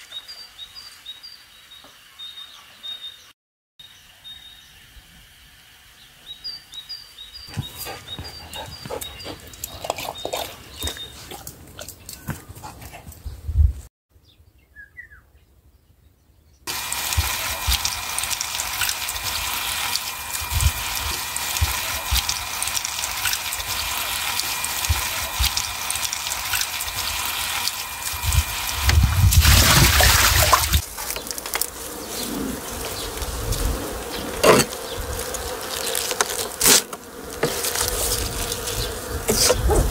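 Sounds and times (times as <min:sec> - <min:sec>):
tap water pouring: 0:16.7 - 0:31.8
stems snapping and rustling: 0:30.8 - 0:31.9, 0:34.4 - 0:38.8.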